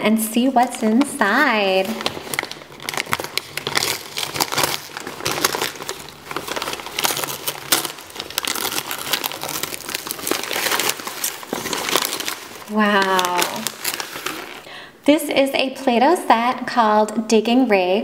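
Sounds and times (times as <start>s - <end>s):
wrapping paper crinkling and tearing: 0.4s - 14.7s.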